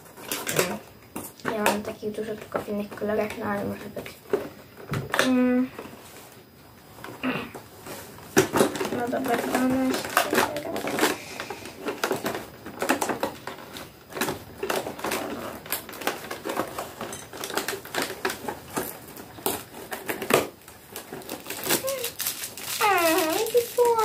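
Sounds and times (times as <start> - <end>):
packaging crinkling and rustling: 0.0 - 5.2, 7.8 - 24.0
girl's voice gliding: 22.8 - 24.0.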